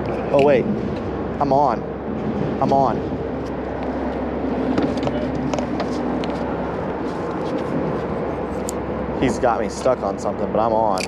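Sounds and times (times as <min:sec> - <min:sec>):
traffic drone on bridge: 0:00.0 - 0:11.0.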